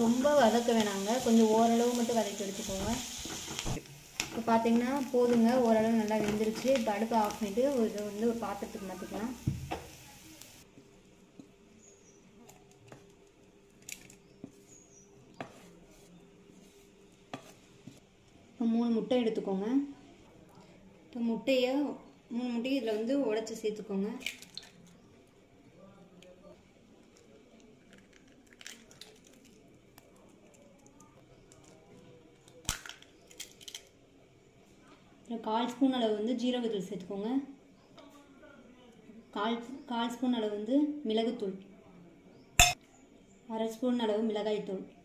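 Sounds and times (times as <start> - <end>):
eggshells cracking on metal bowl: 24.2 - 24.9, 27.0 - 31.8, 32.4 - 33.9.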